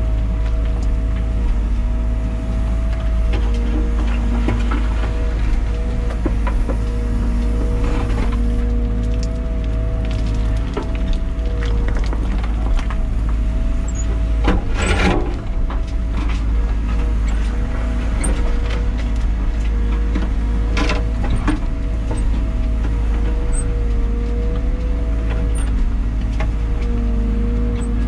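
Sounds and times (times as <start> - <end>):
excavator engine running: 0.0 - 28.0
hydraulic whine: 2.3 - 19.9
dirt and stones scraping: 4.0 - 20.4.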